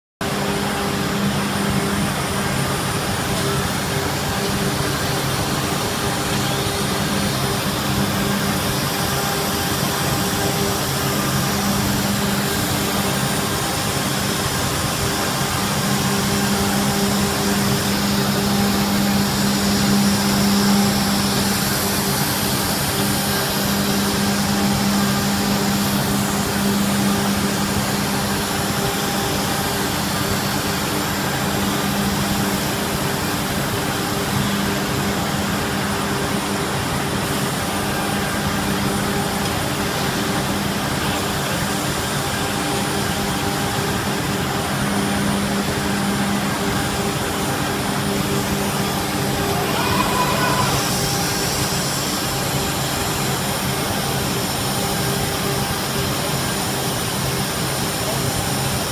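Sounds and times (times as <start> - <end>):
cnc router humming: 0.2 - 58.9.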